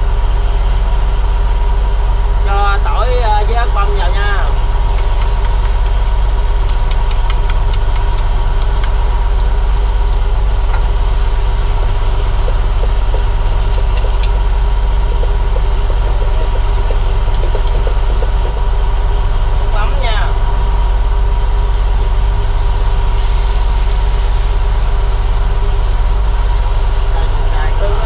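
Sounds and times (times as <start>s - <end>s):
boat engine droning: 0.0s - 28.0s.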